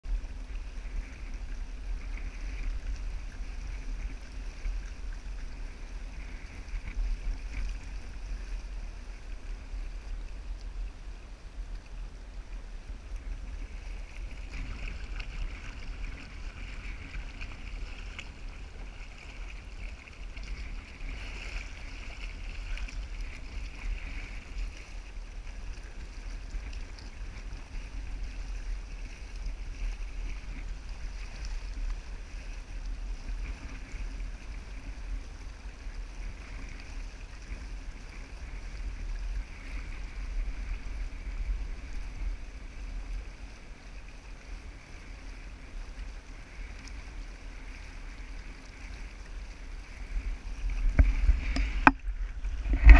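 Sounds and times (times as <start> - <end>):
water splashing along hull: 0.0 - 52.9
wind buffeting microphone: 49.9 - 52.9.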